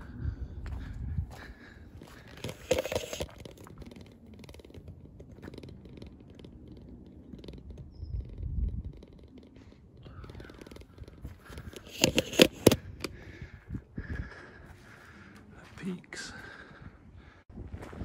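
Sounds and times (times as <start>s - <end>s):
wind rumble on microphone: 0.0s - 15.7s, 16.4s - 18.0s
phone handling noise: 2.3s - 7.8s, 8.7s - 13.2s.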